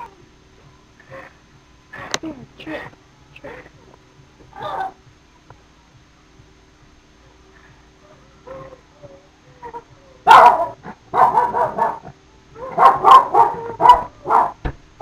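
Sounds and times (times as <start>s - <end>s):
dog whining: 8.1s - 12.0s, 12.6s - 14.6s
dog barking loudly: 10.3s - 12.1s, 12.7s - 14.6s.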